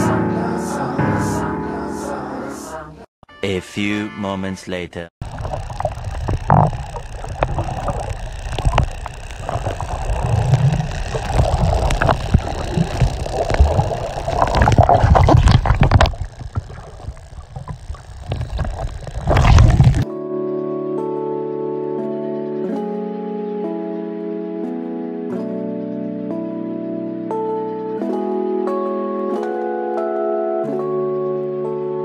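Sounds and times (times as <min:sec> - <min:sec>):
small clicks and knocks: 0:05.2 - 0:20.0
water sloshing underwater: 0:05.2 - 0:20.0.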